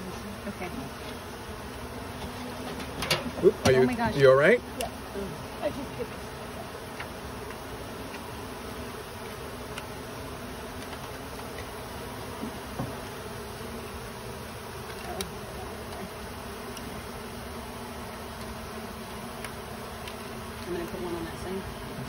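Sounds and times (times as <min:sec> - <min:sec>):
bees buzzing: 0:00.0 - 0:22.0.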